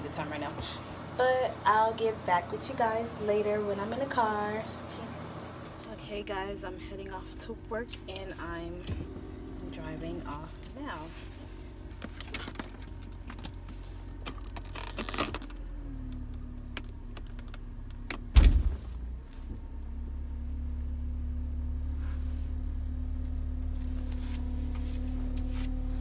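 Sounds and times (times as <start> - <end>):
car engine hum: 0.4 - 26.0
loud thump: 18.3 - 19.0.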